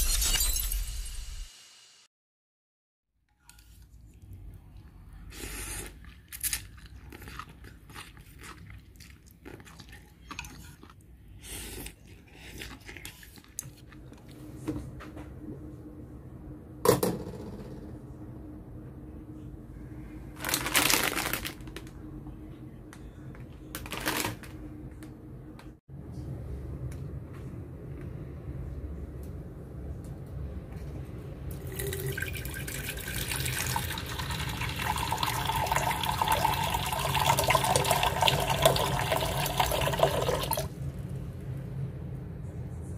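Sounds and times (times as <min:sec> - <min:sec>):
steady low hum: 0:03.8 - 0:23.8, 0:24.4 - 0:42.9
chewing and slurping noodles: 0:05.3 - 0:14.4
plastic packet crinkling: 0:20.4 - 0:21.9, 0:23.8 - 0:24.5.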